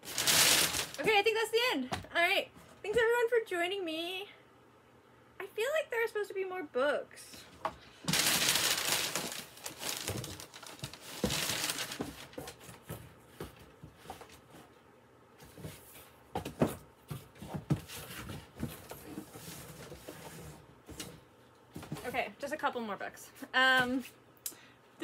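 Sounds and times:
packing material crinkling: 0.0s - 1.1s, 8.0s - 12.6s.

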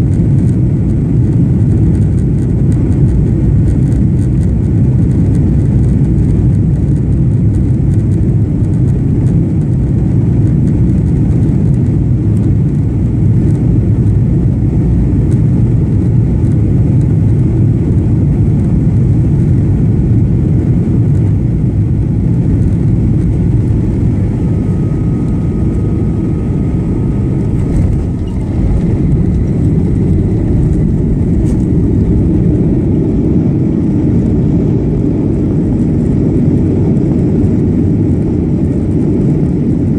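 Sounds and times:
aircraft cabin engine roar: 0.0s - 39.9s
faint thin whine: 20.9s - 34.0s.

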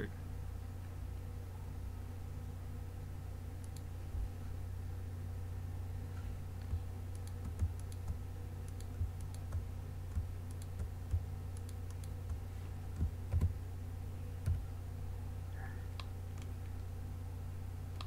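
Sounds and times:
steady low hum: 0.0s - 18.0s
keyboard and mouse clicking: 3.6s - 3.9s, 6.6s - 13.6s.

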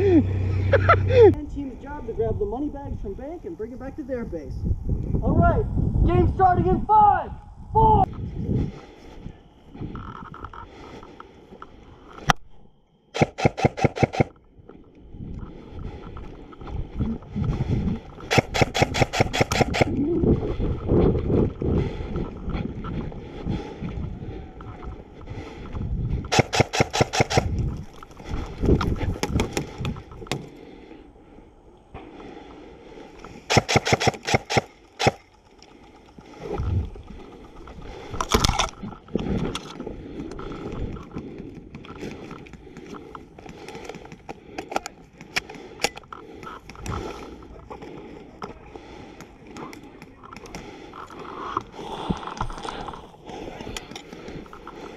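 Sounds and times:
airsoft guns firing bursts: 13.2s - 14.3s, 18.3s - 19.9s, 26.3s - 27.5s, 33.5s - 35.2s.

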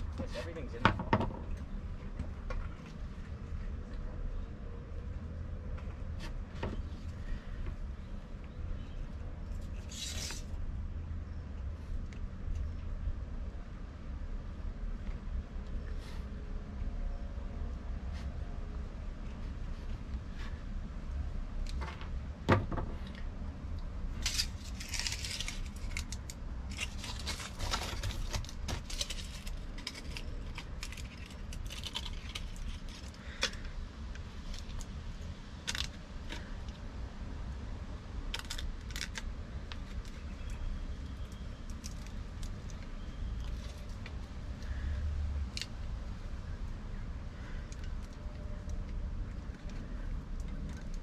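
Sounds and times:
foil wrapper crinkling: 24.2s - 33.6s.

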